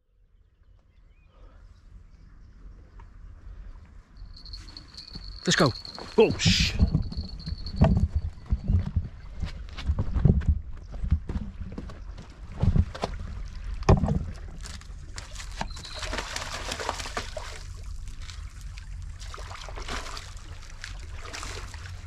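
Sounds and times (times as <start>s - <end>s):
wind rumble on microphone: 1.9s - 16.0s.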